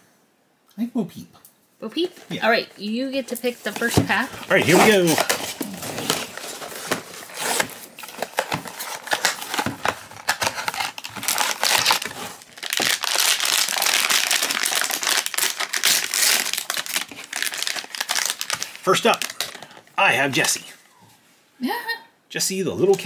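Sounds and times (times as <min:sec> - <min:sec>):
foil pouch crinkling: 0:03.7 - 0:19.8.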